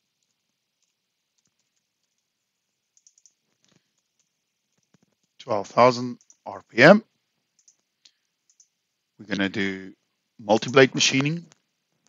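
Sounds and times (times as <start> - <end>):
mouse clicks: 2.9 - 5.3, 7.6 - 8.8
computer keyboard clicks: 2.9 - 5.4, 6.2 - 6.4, 7.6 - 7.8, 8.5 - 8.7.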